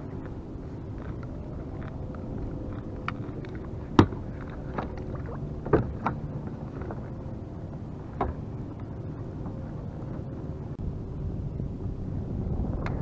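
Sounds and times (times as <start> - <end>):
low wind: 0.0 - 13.0
water noise: 0.0 - 13.0.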